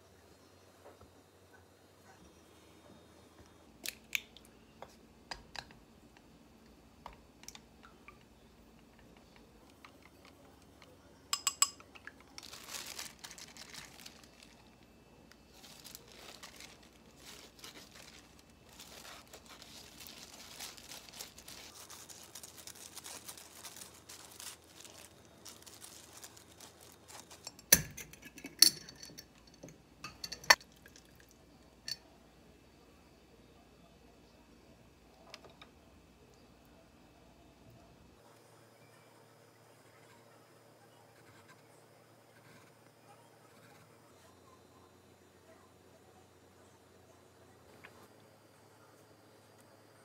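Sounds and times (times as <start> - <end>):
wooden utensil clinking glass jar: 11.3 - 12.0, 27.4 - 31.1
plastic glove rustling: 11.4 - 28.3.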